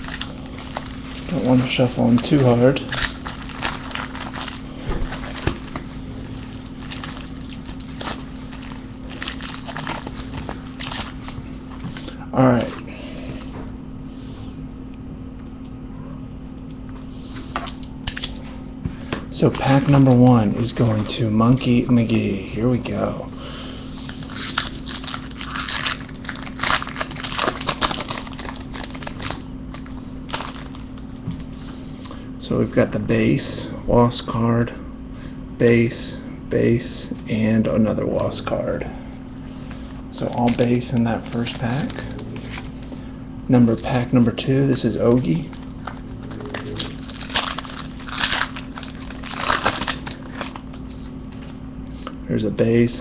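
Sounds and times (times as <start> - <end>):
foil packs crinkling: 0.0 - 13.4, 19.3 - 22.3, 23.9 - 31.6, 39.8 - 43.0, 44.9 - 51.6.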